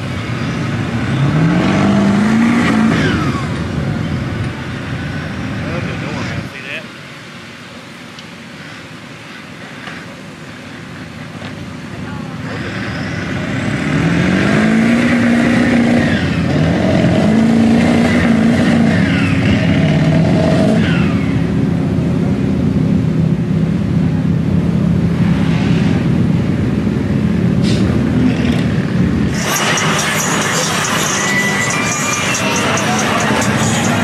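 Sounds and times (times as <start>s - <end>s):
truck engine revving hard: 0.0s - 6.5s, 12.4s - 22.0s, 25.0s - 34.0s.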